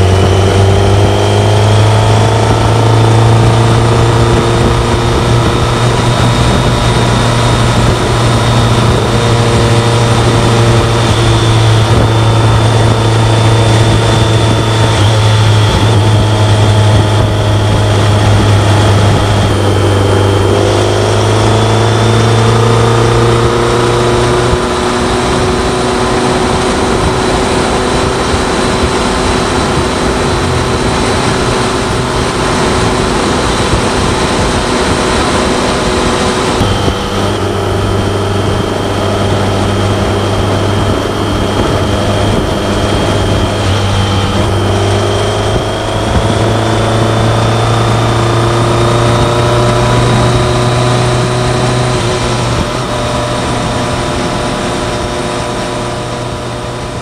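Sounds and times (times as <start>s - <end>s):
motorcycle engine running: 0.0s - 57.0s
wind and road noise: 0.0s - 57.0s.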